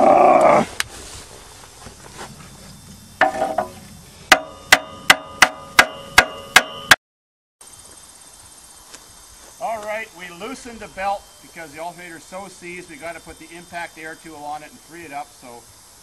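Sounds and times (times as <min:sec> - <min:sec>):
hammer striking metal: 0:03.2 - 0:07.0.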